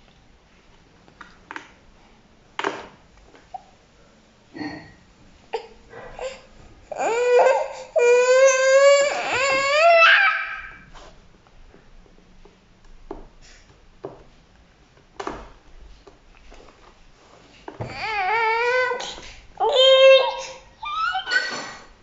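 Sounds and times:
baby crying: 5.6s - 10.9s, 17.9s - 21.6s.

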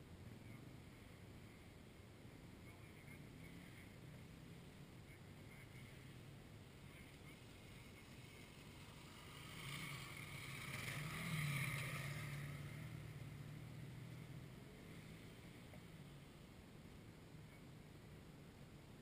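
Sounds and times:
low steady engine hum: 0.0s - 19.0s
dirt bike riding past: 7.0s - 16.3s.

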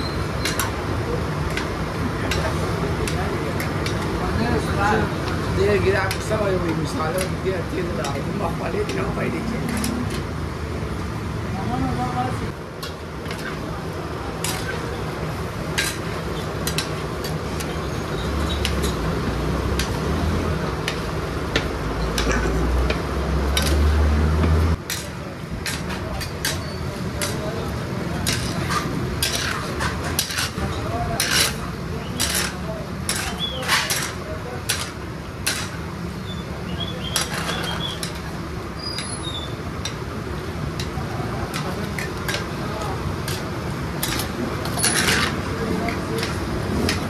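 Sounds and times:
metal spatulas clinking on griddle: 14.4s - 14.8s, 15.8s - 17.8s, 23.5s - 23.8s, 24.8s - 27.5s, 28.2s - 35.8s, 37.0s - 38.2s, 43.3s - 47.0s.

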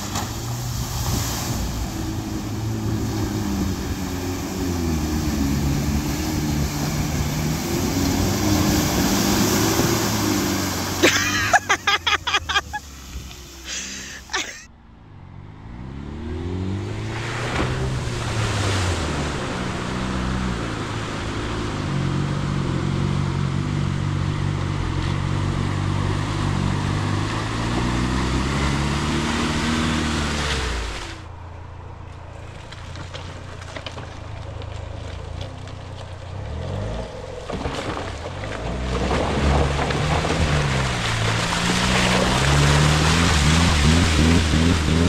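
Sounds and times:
mud splashing and tyre noise: 0.0s - 45.0s
engine revving hard: 38.7s - 45.0s.

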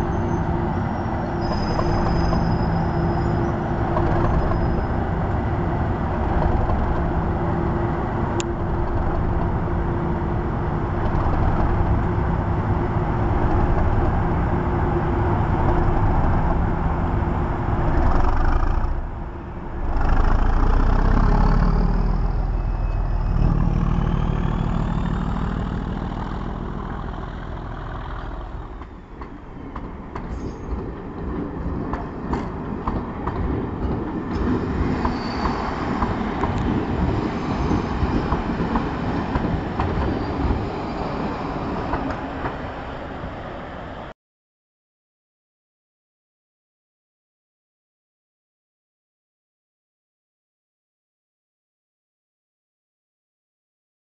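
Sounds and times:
train coaches rolling over rails: 0.0s - 18.4s, 21.8s - 43.4s
diesel locomotive engine rumbling: 0.0s - 44.1s.

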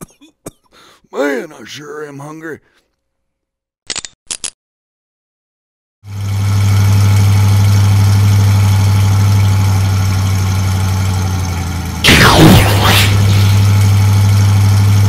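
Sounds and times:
monster truck engine drone: 6.1s - 15.0s.

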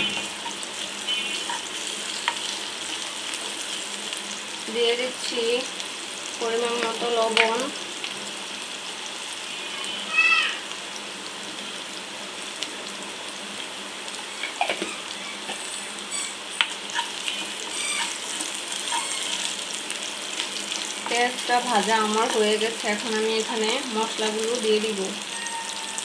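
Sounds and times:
food sizzling in hot oil: 0.0s - 26.0s
wooden spatula stirring: 16.9s - 19.7s
high-pitched call: 25.2s - 26.0s.

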